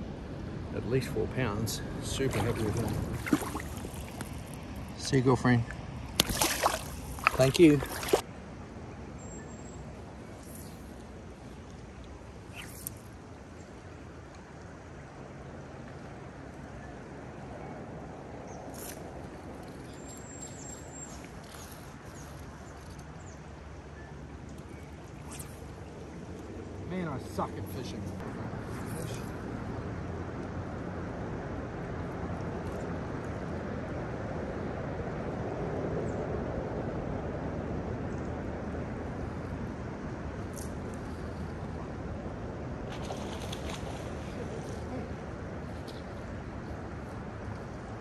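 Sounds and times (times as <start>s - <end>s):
swift river flowing: 1.8s - 5.0s, 6.2s - 8.3s.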